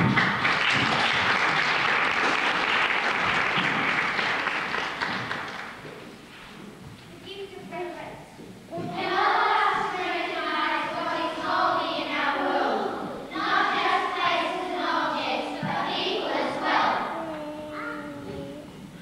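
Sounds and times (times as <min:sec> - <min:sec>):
children singing together: 0:08.7 - 0:18.7.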